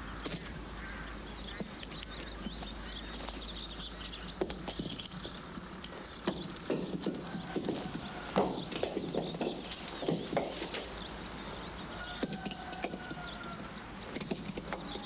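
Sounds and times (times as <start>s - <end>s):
small birds chirping: 0.0s - 15.0s
steady low hum: 0.0s - 15.0s
sharp knocks: 6.2s - 11.0s.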